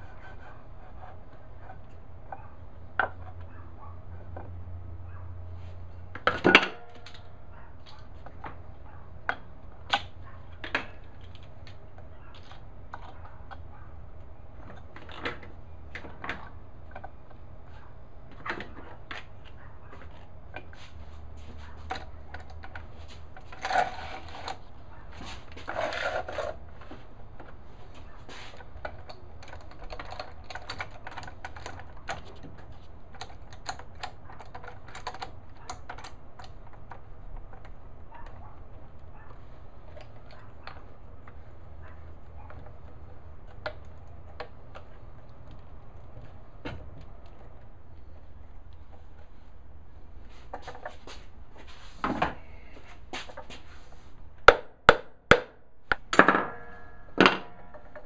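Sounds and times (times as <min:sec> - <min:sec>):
clamps clicking and knocking: 0:28.6 - 0:37.8.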